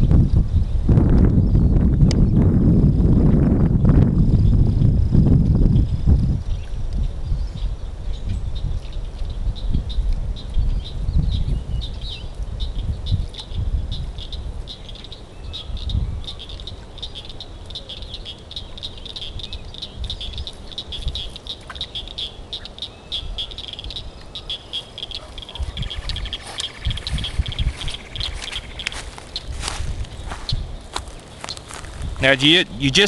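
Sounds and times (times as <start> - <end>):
high-pitched chirping calls: 11.3 - 33.0.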